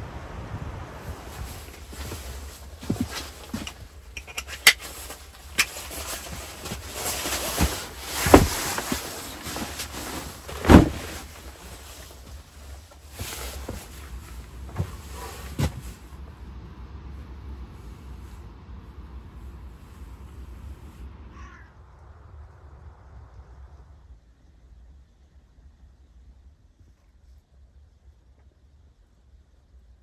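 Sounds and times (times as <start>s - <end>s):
fabric and straps rustling: 1.0s - 16.2s
backpack knocks and clicks: 2.8s - 9.9s
heavy thumps: 6.6s - 11.4s
steady low rumble: 11.2s - 30.0s.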